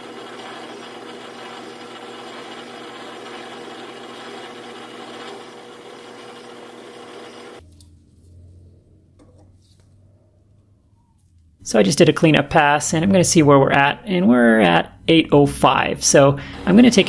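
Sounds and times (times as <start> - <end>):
metal lathe cutting: 0.0 - 7.6.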